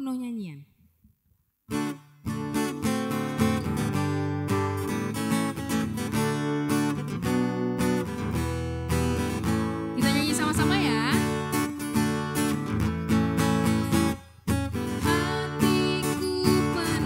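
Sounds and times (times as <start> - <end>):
person's wavering voice: 0.0 - 0.7, 10.0 - 11.3
acoustic guitar strumming: 1.7 - 17.0.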